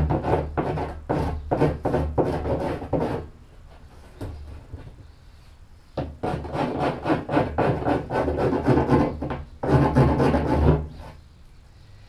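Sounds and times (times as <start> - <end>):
rasp scraping plastic: 6.0 - 11.2.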